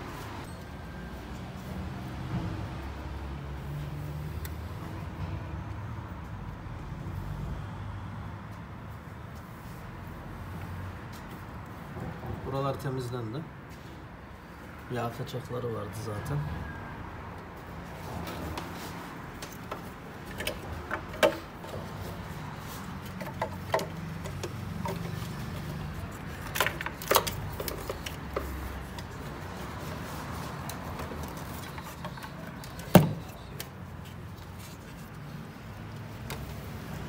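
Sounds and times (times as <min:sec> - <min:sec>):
clicks and knocks of hand tools: 0:19.4 - 0:21.9, 0:23.0 - 0:29.2, 0:30.6 - 0:33.8.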